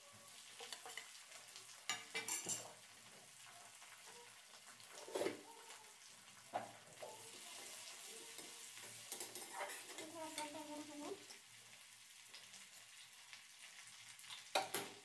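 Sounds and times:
spice paste sizzling in oil: 0:00.0 - 0:15.0
metal spatula scraping a pan: 0:00.5 - 0:02.8, 0:04.8 - 0:05.8, 0:06.5 - 0:11.0.

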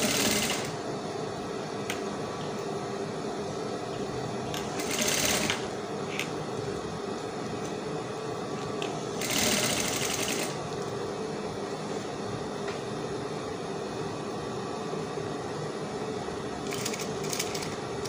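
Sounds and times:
sewing machine stitching: 0:00.0 - 0:00.7, 0:04.8 - 0:05.6, 0:09.2 - 0:10.6, 0:16.7 - 0:17.8
steady machine hum: 0:00.0 - 0:18.0.

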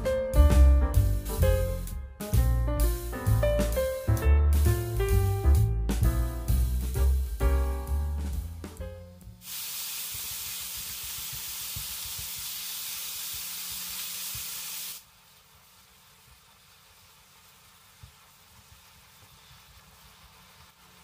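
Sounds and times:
piano music: 0:00.0 - 0:09.4
meat sizzling in a frying pan: 0:09.4 - 0:15.0.

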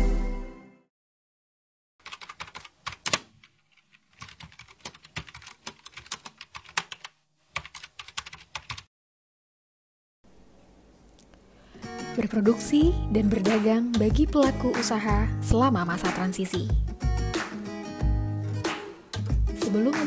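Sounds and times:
computer keyboard typing: 0:02.0 - 0:08.9.

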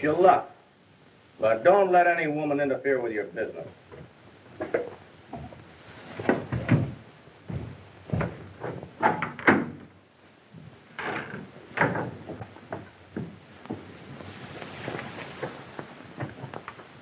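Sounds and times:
footsteps: 0:03.6 - 0:09.0, 0:10.5 - 0:17.0
knocks and thumps: 0:03.8 - 0:09.9, 0:10.5 - 0:14.0
wooden door opening and shutting: 0:06.2 - 0:07.0, 0:07.6 - 0:10.0, 0:11.0 - 0:13.3.

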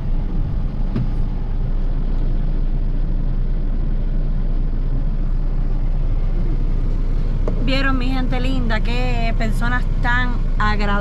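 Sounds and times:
car interior rumble: 0:00.0 - 0:11.0.

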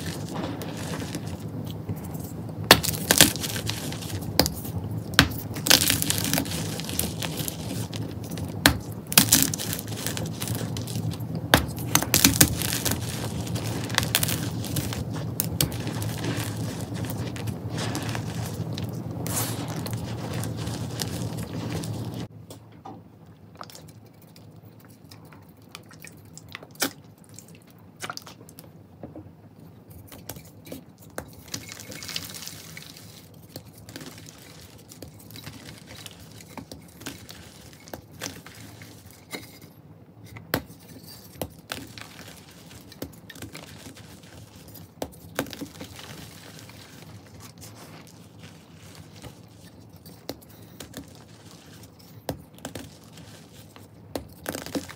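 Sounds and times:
chalk crunching and crackling: 0:00.0 - 0:22.3, 0:30.3 - 0:39.6, 0:40.3 - 0:54.9
low hum: 0:00.0 - 0:22.3.

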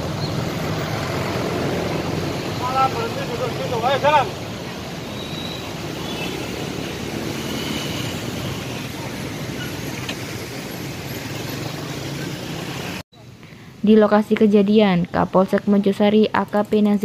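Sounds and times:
motor scooter engines in traffic: 0:00.0 - 0:13.4.

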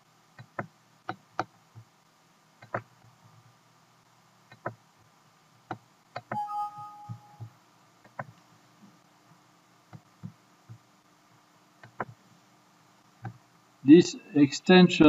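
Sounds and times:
computer mouse clicks: 0:00.4 - 0:01.8, 0:02.6 - 0:02.9, 0:04.5 - 0:04.8, 0:08.0 - 0:08.4, 0:11.8 - 0:12.2
two-tone alert chime: 0:06.4 - 0:07.4.

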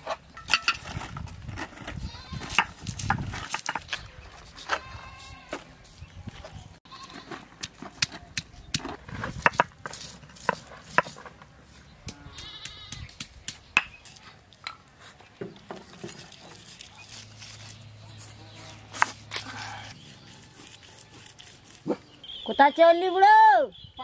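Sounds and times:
stone roller crushing garlic: 0:18.6 - 0:22.0.

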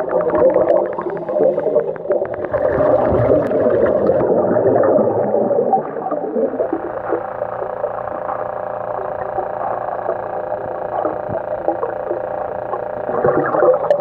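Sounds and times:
air bubbling underwater: 0:00.0 - 0:07.7, 0:13.1 - 0:14.0
diver breathing through regulator: 0:00.8 - 0:02.3.

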